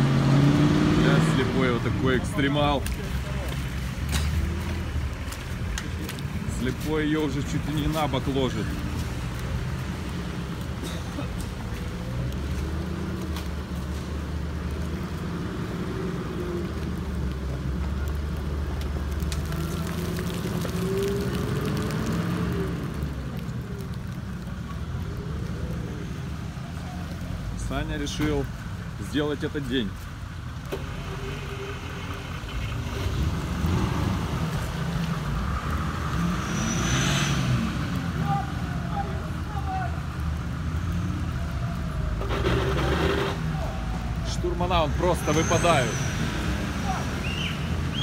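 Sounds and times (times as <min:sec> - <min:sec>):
vehicle engine rumbling: 0:00.0 - 0:48.0.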